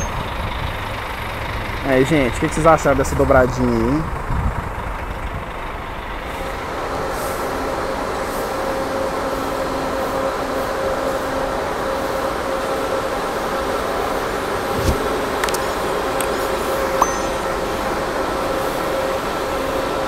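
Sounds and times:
bus engine idling: 0:00.0 - 0:20.0
faint steady tones: 0:14.6 - 0:18.3.

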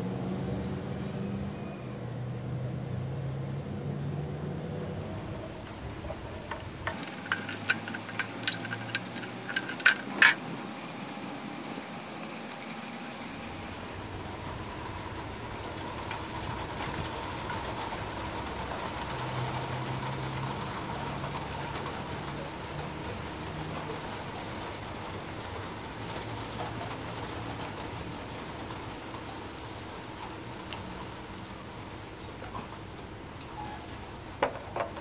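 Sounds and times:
steady background hum: 0:04.3 - 0:17.0.

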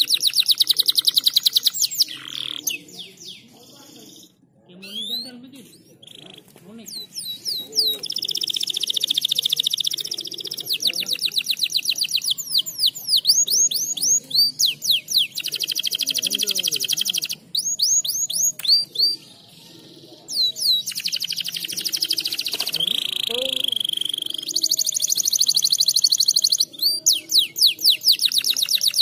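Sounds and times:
canary singing trills: 0:00.0 - 0:29.0.

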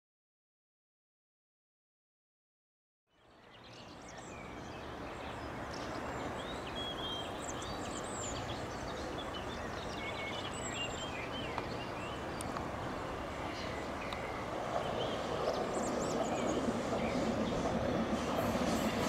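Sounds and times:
songbirds chirping and whistling: 0:03.2 - 0:19.0.

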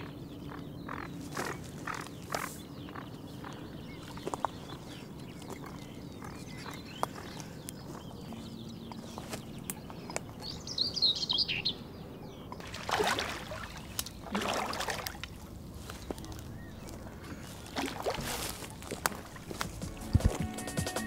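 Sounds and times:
bird chirping: 0:00.0 - 0:12.7
fish splashing at surface: 0:12.6 - 0:15.4.

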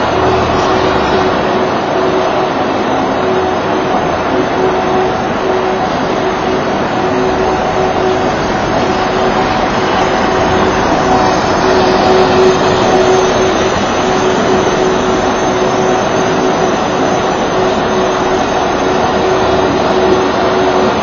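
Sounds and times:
ice resurfacer droning: 0:00.0 - 0:21.0.

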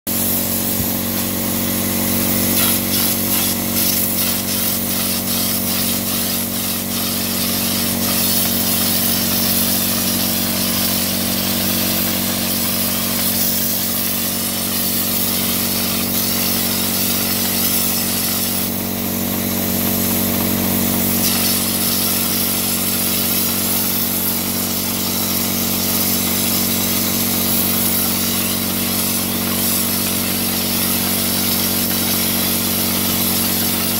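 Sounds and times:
spray gun hissing: 0:00.1 - 0:33.9
spray rig motor humming: 0:00.1 - 0:33.9.

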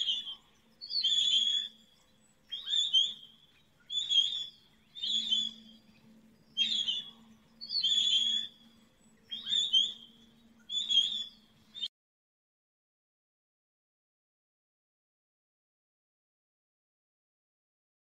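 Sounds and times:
bird short high calls: 0:00.0 - 0:11.9
faint low hum: 0:04.6 - 0:10.7.

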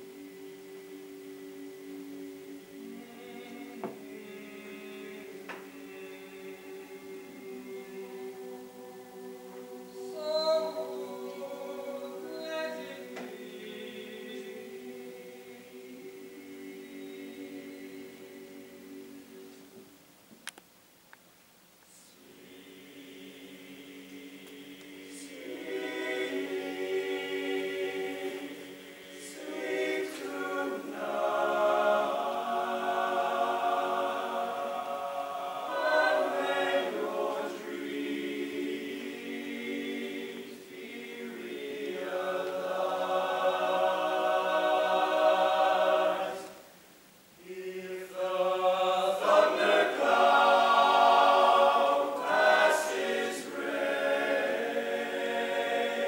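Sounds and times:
male choir singing in parts: 0:00.0 - 0:19.7, 0:22.2 - 0:46.7, 0:47.4 - 0:56.0.

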